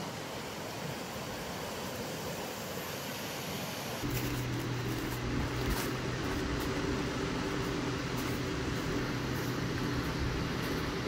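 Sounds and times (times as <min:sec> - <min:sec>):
motor humming: 0:04.0 - 0:11.0.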